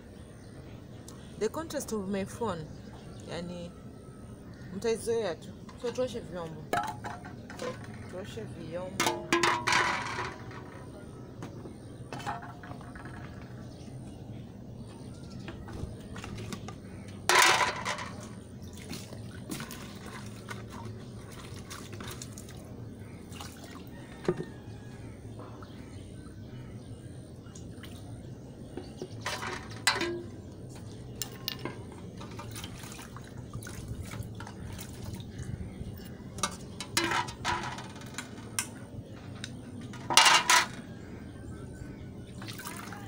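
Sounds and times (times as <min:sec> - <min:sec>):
pots clinking against metal basin: 0:06.7 - 0:08.2, 0:09.0 - 0:10.9, 0:16.5 - 0:18.4, 0:28.8 - 0:32.8, 0:36.4 - 0:38.8, 0:39.9 - 0:40.8
water splashing and dripping: 0:18.1 - 0:24.0, 0:28.8 - 0:38.6, 0:42.4 - 0:43.0.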